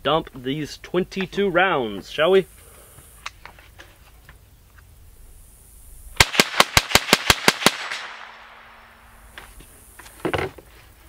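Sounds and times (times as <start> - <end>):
rifle firing rapid shots: 6.2 - 8.7.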